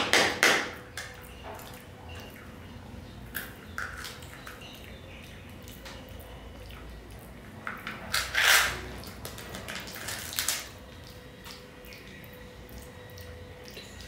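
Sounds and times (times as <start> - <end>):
foil seal crinkling: 8.1 - 10.7.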